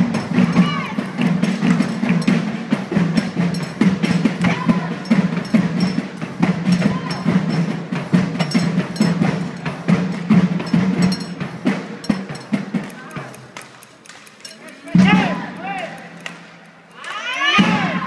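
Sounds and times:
rackets striking shuttlecock: 0:11.9 - 0:17.2.

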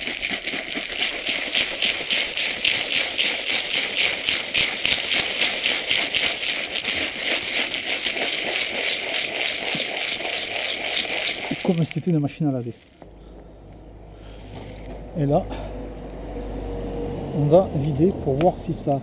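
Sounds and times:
gravel and water rattling in plastic tank: 0:00.0 - 0:12.8.

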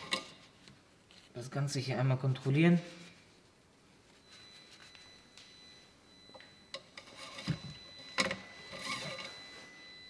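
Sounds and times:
cloth rustling: 0:02.8 - 0:05.8.

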